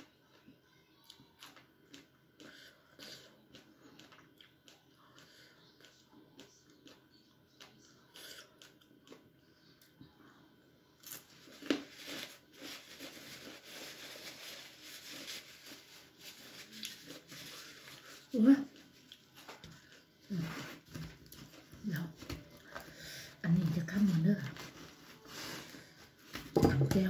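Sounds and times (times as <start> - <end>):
chewing raw vegetables: 0.3 - 9.3
paper tissue rustling: 11.3 - 19.6, 23.5 - 26.5.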